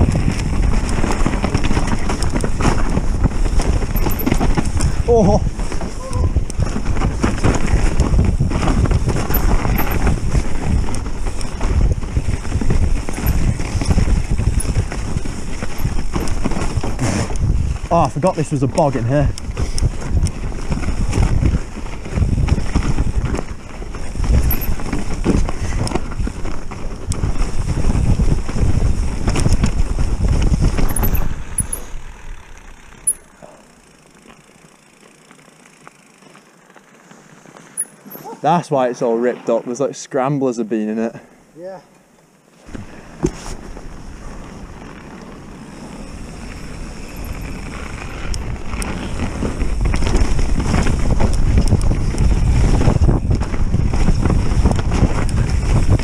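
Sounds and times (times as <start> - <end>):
wind on microphone: 0.0 - 18.4, 19.2 - 33.2, 46.1 - 56.0
bike rattling on rough ground: 0.0 - 41.3, 42.1 - 56.0
camera rattling in mount: 3.9 - 4.8, 30.7 - 32.0
tires hissing on snow: 16.6 - 18.6.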